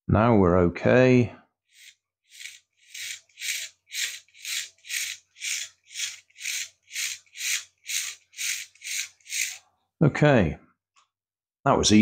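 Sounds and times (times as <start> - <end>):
plastic parts rasping: 1.7 - 9.7.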